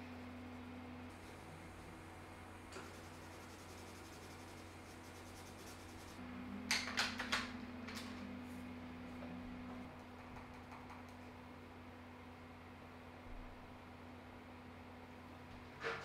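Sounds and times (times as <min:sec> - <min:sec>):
pencil scratching on paper: 0:02.8 - 0:06.2.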